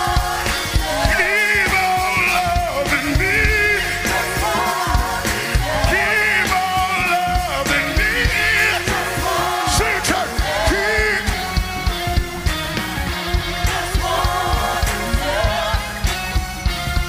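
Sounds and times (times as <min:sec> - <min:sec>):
man singing lead: 0:00.0 - 0:11.6
backing vocalists singing: 0:00.0 - 0:17.0
band with drums: 0:00.0 - 0:17.0.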